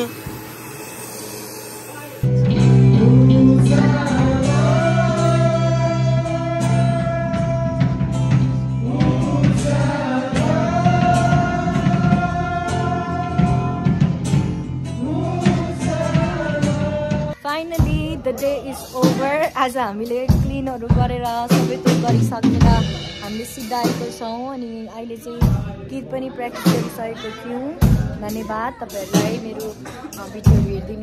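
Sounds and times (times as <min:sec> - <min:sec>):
steady drum beat: 0:00.0 - 0:00.6, 0:02.2 - 0:31.0
guitars: 0:00.0 - 0:31.0
people singing held notes: 0:08.8 - 0:14.2.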